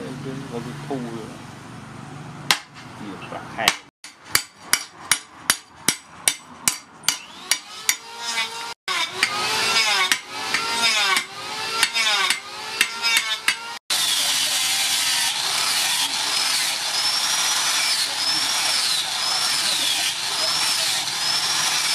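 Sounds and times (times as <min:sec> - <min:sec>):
angle grinder sanding wood: 0:07.2 - 0:21.9.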